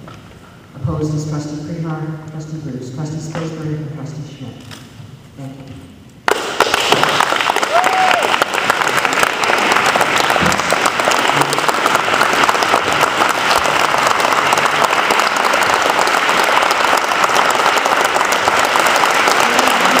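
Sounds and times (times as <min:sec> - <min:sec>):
audience applauding: 0:06.3 - 0:20.0.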